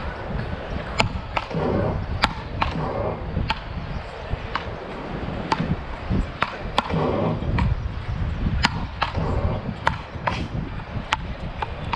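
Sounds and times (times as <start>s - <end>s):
ball hitting paddle rackets: 0.8s - 3.7s, 4.5s - 4.8s, 5.4s - 7.8s, 8.6s - 11.9s.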